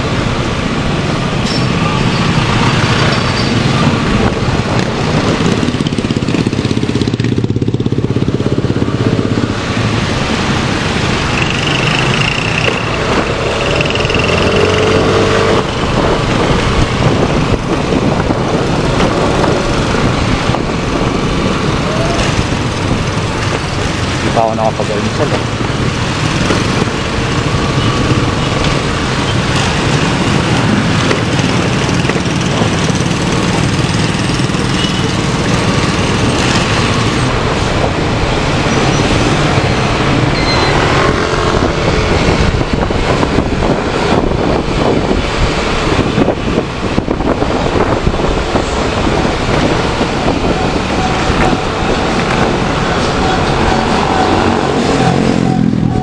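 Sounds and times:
road traffic engines: 0.0 - 56.0
people talking: 24.2 - 25.4.

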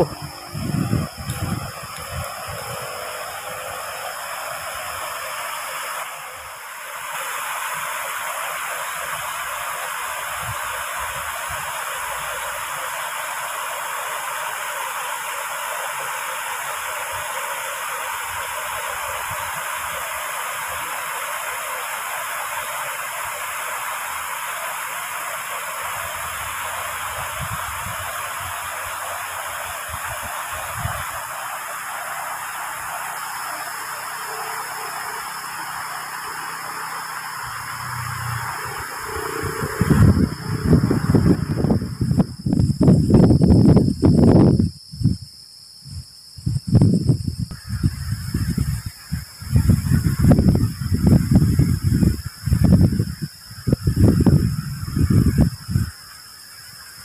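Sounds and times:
wind buffeting microphone: 0.0 - 3.9, 26.1 - 29.0, 29.8 - 31.3, 37.4 - 45.2, 46.4 - 55.9
floodwater rushing: 0.0 - 42.2.

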